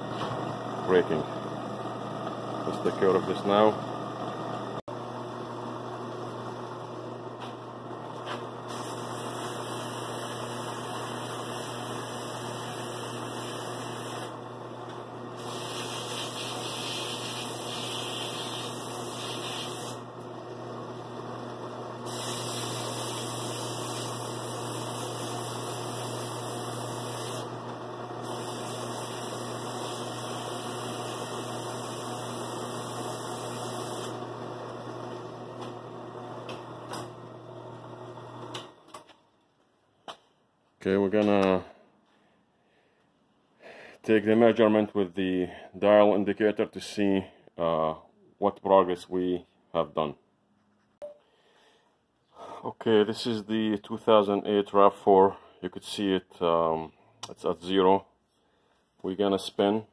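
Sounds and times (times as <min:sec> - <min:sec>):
sandpaper hissing on spinning rotor: 0:15.4 - 0:20.0, 0:22.1 - 0:27.5, 0:28.2 - 0:34.1.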